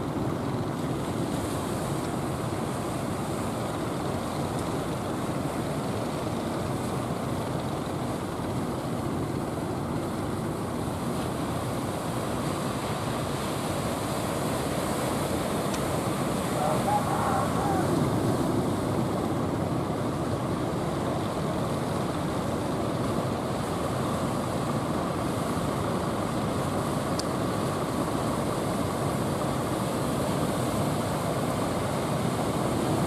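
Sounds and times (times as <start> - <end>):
ocean surf breaking: 10.5 - 33.0
wind on microphone: 16.2 - 19.8.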